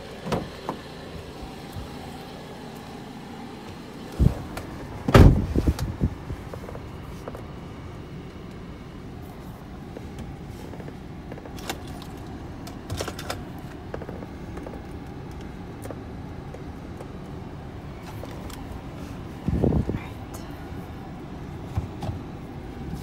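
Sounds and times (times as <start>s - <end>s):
car engine and road hum: 0.0s - 23.0s.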